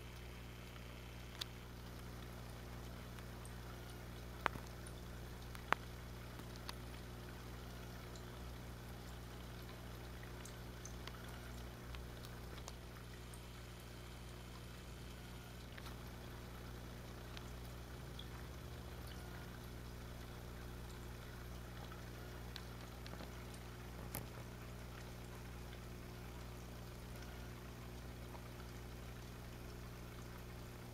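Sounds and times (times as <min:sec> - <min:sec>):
aquarium equipment hum: 0:00.0 - 0:30.9
tiny ticks: 0:00.2 - 0:07.4, 0:09.1 - 0:12.8, 0:17.2 - 0:19.6, 0:21.8 - 0:25.9.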